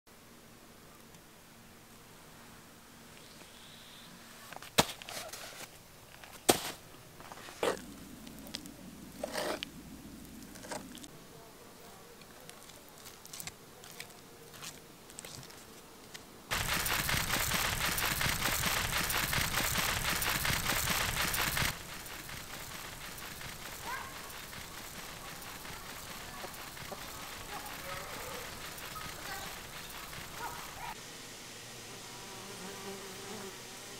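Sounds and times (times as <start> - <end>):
corn husks rustling: 4.4 - 9.6, 12.2 - 31.0
loud crackling rustle: 16.5 - 31.0.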